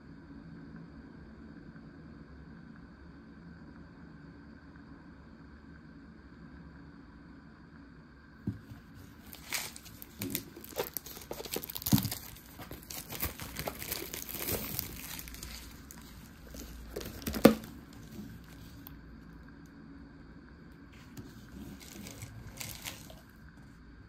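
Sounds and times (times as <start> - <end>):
plastic packaging crinkling and tearing: 8.5 - 18.9, 21.0 - 23.3.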